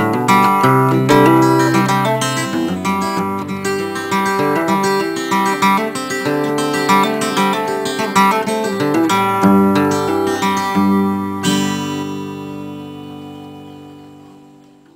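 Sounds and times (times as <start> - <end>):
acoustic guitar picked and strummed: 0.0 - 14.9.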